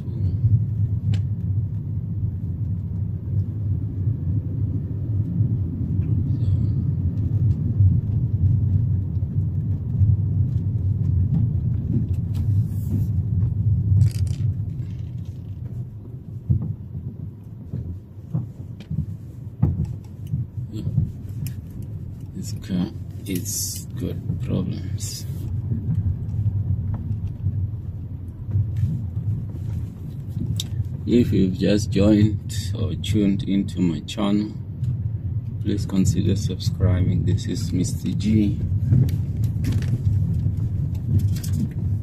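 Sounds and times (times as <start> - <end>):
car engine and tyres rumble: 0.0 - 42.0.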